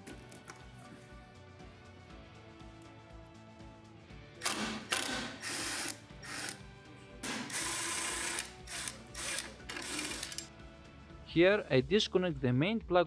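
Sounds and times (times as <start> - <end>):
faint background music: 0.0 - 13.0
cordless power driver whirring: 4.4 - 6.6, 7.4 - 10.5.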